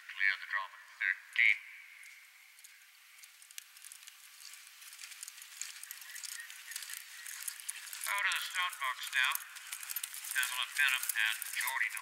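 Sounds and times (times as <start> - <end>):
horse hoofbeats on dry ground: 2.7 - 12.0.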